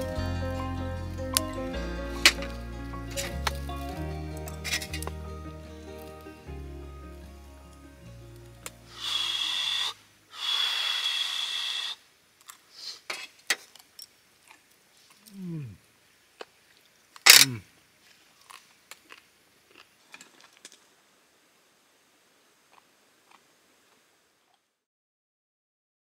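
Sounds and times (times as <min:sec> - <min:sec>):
person humming mmm: 0:08.9 - 0:11.9, 0:15.2 - 0:15.8, 0:17.4 - 0:17.6
short hiss: 0:08.9 - 0:13.4.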